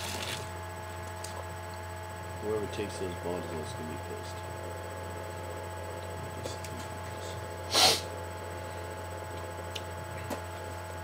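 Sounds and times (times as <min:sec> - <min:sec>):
low electrical hum: 0:00.0 - 0:11.0
person sneezing: 0:07.6 - 0:08.2.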